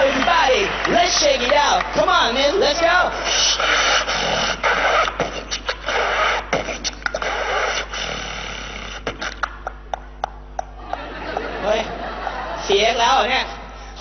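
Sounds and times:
beatboxing into microphones: 3.0 - 11.4.

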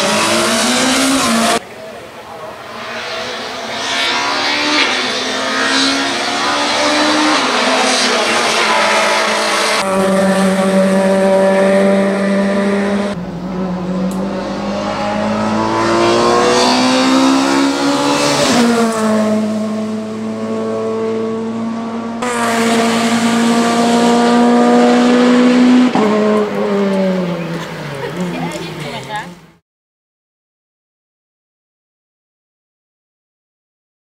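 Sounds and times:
race car engine at high revs: 0.0 - 29.6.

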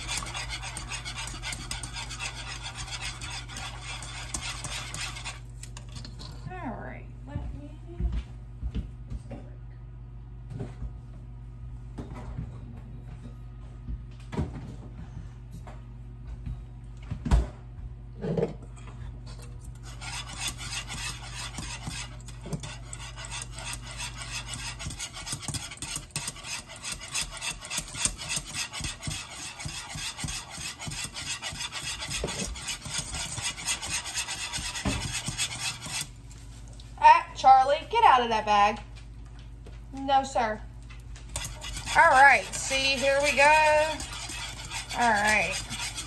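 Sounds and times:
wire whisk scraping metal pot: 0.0 - 6.2, 19.7 - 36.4, 41.2 - 46.0.

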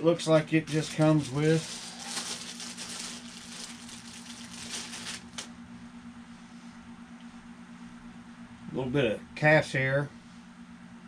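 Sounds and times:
steady low hum: 0.0 - 11.0
handling rustling and crackling: 0.1 - 5.5.

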